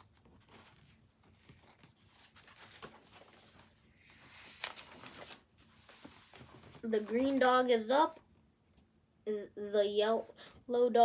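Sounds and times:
page flip with sharp crackle: 0.0 - 7.6
book pages turning: 0.0 - 7.8.

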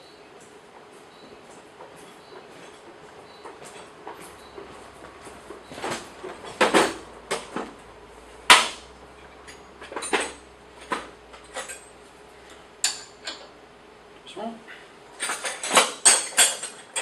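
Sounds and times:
spanner clinking on metal bolt: 15.2 - 17.0.

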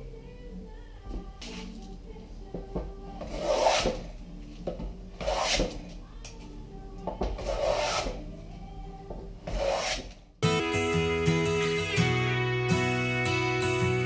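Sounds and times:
hand plane shaving wood: 3.3 - 4.0, 5.2 - 5.8, 7.4 - 8.2, 9.5 - 10.1.

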